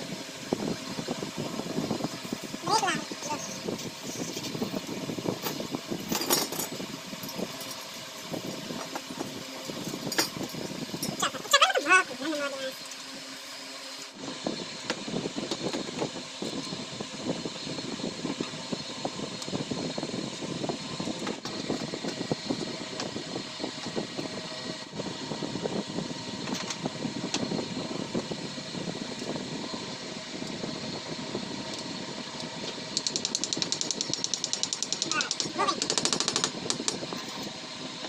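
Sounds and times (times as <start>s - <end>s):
steady mechanical hum: 0.0s - 38.0s
small clicks and rustles of hands: 33.0s - 37.0s.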